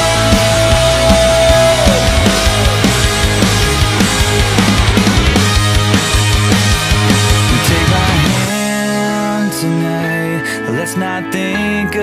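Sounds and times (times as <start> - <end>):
fast steady drum beat: 0.0 - 8.5
loud rock music: 0.0 - 12.0.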